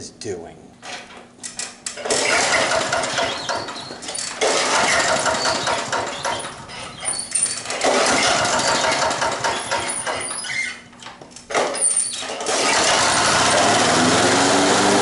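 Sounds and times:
lawn mower pull start: 0:02.0 - 0:10.6, 0:11.5 - 0:15.0
mower engine running: 0:07.8 - 0:09.5, 0:12.4 - 0:15.0.

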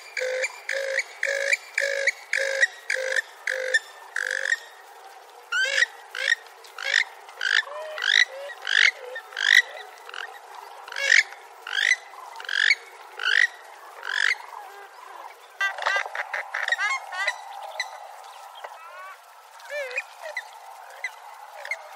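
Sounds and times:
swamphen calling: 0:00.0 - 0:04.9, 0:05.5 - 0:21.9.

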